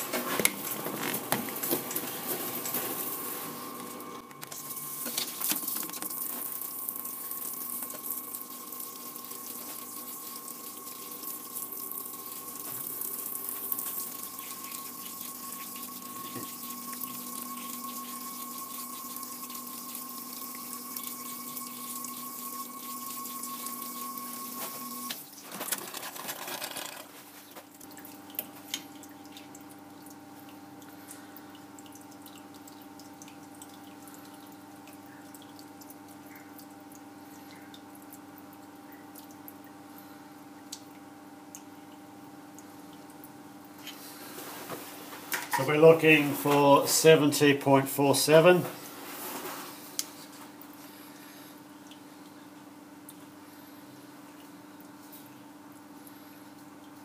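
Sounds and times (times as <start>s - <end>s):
light clicks and drips: 27.2s - 45.8s, 49.8s - 57.0s.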